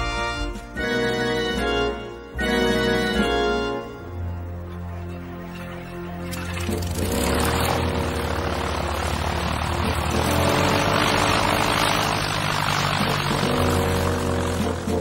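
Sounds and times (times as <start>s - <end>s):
propeller plane engine running up: 0.0s - 15.0s.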